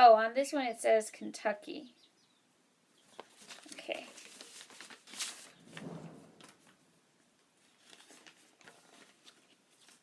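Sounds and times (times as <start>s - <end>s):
paper rustling and crinkling: 3.1s - 6.8s, 7.6s - 10.0s.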